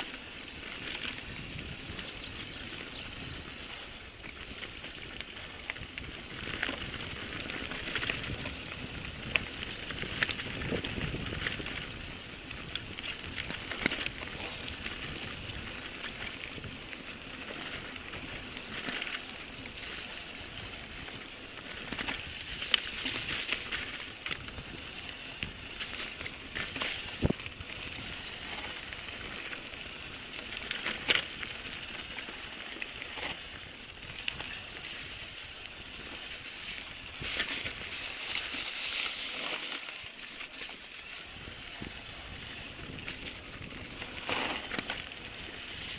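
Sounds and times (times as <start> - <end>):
bike knocking and rattling: 0.0 - 45.9
bike tyres crackling over dirt: 0.0 - 45.9.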